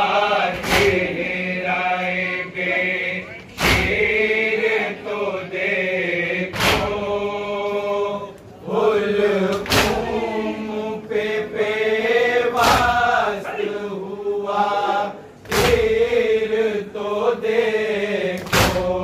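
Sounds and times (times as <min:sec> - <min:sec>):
men chanting a lament: 0:00.0 - 0:19.0
crowd slapping chests: 0:00.4 - 0:01.4, 0:03.4 - 0:04.7, 0:06.4 - 0:07.8, 0:08.4 - 0:10.8, 0:12.2 - 0:13.4, 0:15.4 - 0:16.6, 0:18.2 - 0:19.0.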